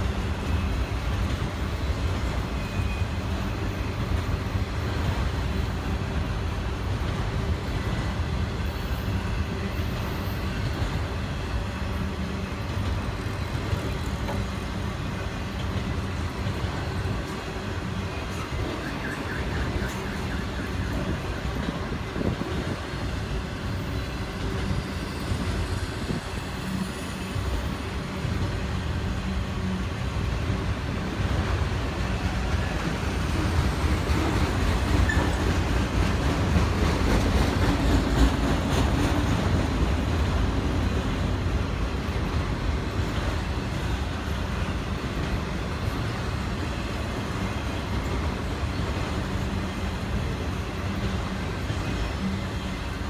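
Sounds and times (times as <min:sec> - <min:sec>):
freight train wheels rumbling: 0:00.0 - 0:53.0.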